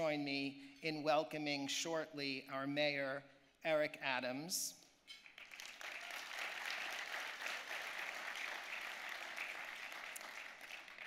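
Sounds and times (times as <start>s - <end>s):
audience applauding: 5.2s - 11.0s.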